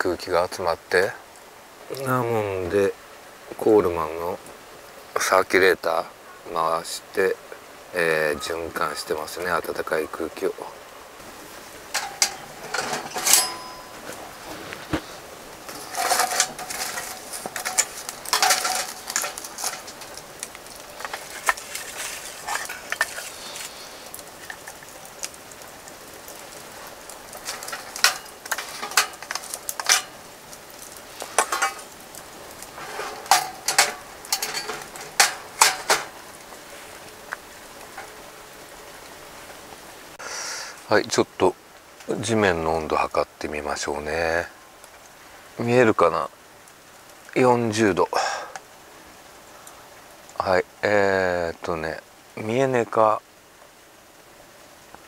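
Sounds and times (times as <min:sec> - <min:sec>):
metal stove door clanking: 0:11.9 - 0:14.2, 0:15.7 - 0:20.2, 0:27.4 - 0:30.2, 0:31.4 - 0:31.9, 0:32.8 - 0:36.2.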